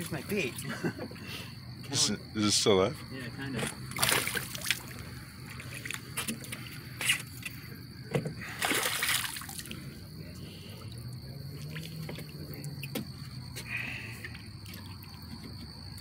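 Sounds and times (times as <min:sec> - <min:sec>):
fish splashing at water surface: 0:03.8 - 0:06.4, 0:08.4 - 0:10.0.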